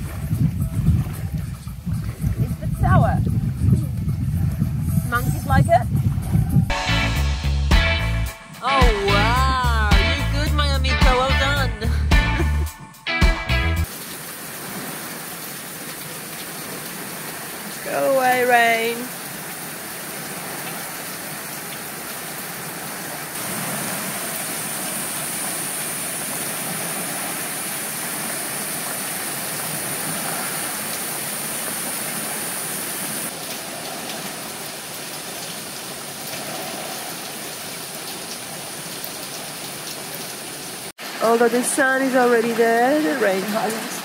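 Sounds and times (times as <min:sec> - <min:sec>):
heavy rain on a roof: 0:13.8 - 0:44.0.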